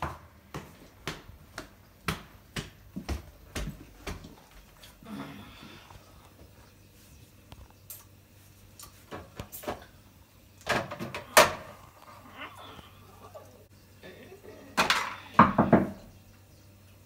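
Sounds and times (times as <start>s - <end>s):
items clicking on refrigerator shelves: 10.6s - 11.8s.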